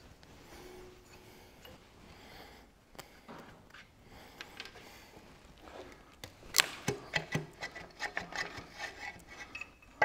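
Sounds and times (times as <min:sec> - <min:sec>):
metal clinks and knocks: 0:09.4 - 0:10.0.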